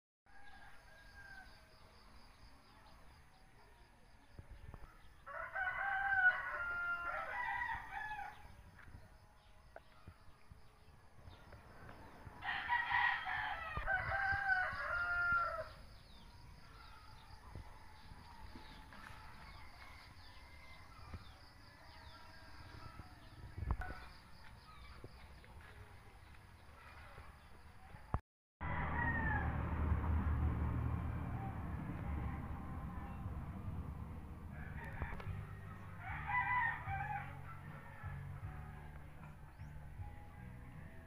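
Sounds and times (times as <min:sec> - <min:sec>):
rooster crowing: 0:00.3 - 0:01.6, 0:05.3 - 0:08.5, 0:12.4 - 0:15.9, 0:28.6 - 0:29.9, 0:34.5 - 0:38.6.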